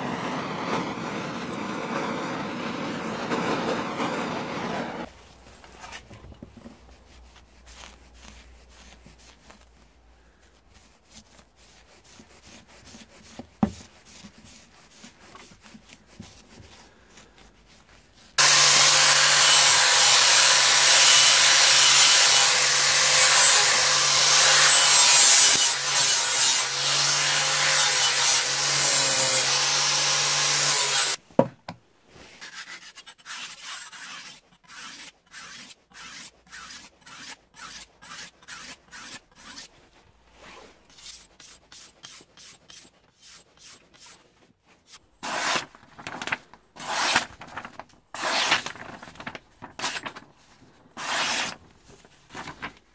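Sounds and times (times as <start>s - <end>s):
angle grinder cutting steel: 18.4s - 31.2s
blade sharpened on whetstone: 32.4s - 39.7s, 40.9s - 44.2s.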